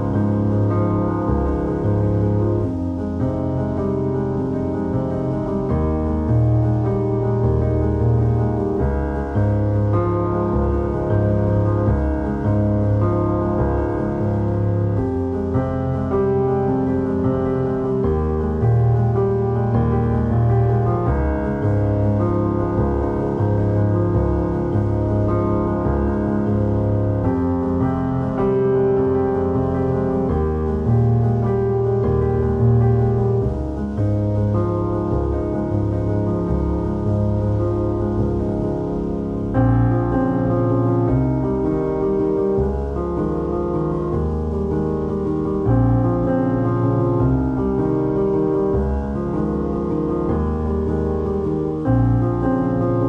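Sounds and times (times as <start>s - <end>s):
slow keyboard chords: 0.0s - 53.0s.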